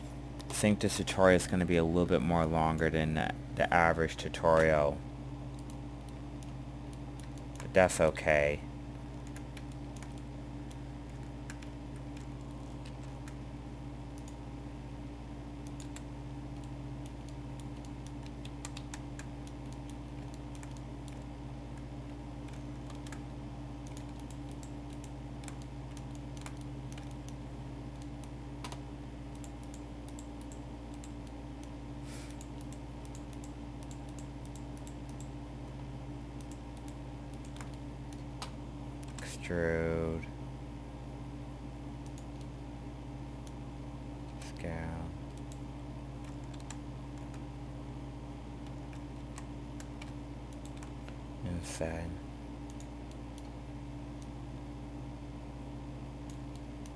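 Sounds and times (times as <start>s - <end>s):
low electrical hum: 0.0s - 56.9s
keyboard and mouse clicks: 9.1s - 13.4s, 15.6s - 23.2s, 23.8s - 27.4s, 28.0s - 31.8s, 36.4s - 39.2s, 46.2s - 47.4s, 48.6s - 51.2s.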